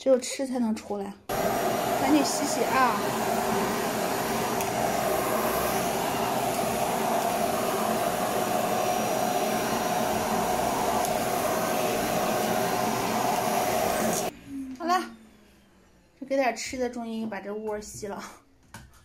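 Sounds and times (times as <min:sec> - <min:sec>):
vacuum cleaner running: 0:01.3 - 0:16.1.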